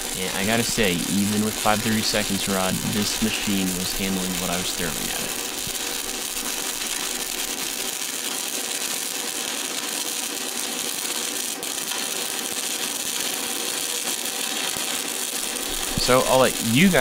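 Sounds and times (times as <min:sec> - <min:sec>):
welding arc crackling: 0:00.0 - 0:17.0.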